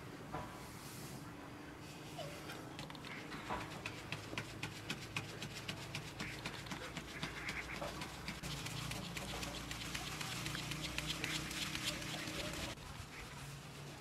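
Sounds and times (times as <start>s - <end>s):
flour sifting through sieve: 3.6s - 14.0s.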